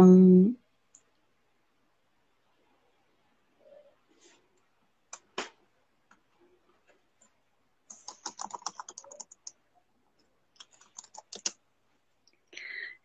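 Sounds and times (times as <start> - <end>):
typing on a keyboard: 7.9 - 9.6, 10.6 - 11.6.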